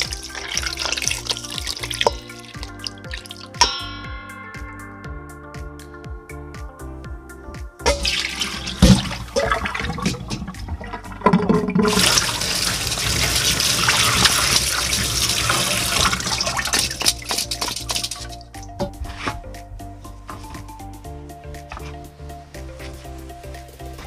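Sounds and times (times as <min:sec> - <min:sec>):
tap water running into colander: 0:00.0 - 0:03.6, 0:07.9 - 0:18.4
water splashing: 0:00.0 - 0:03.8, 0:07.9 - 0:18.5.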